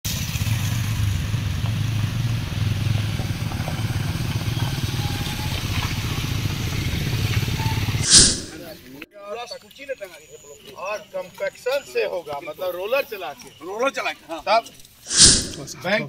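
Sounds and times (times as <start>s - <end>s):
suv engine rumble: 0.1s - 8.0s
motorcycles running: 0.1s - 8.8s.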